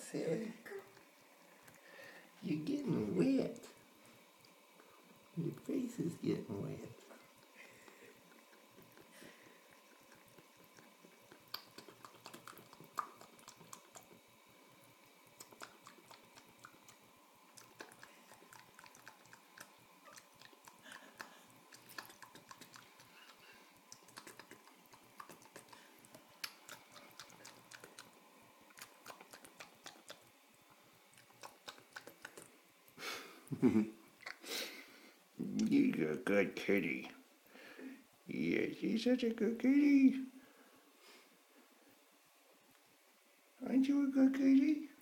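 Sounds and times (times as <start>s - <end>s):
cat lapping water: 4.2s - 5.6s, 7.0s - 32.9s.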